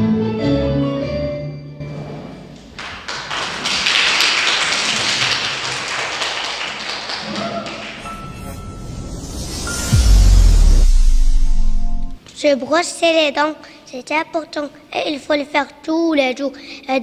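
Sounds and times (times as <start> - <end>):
group clapping: 2.6 - 8.4.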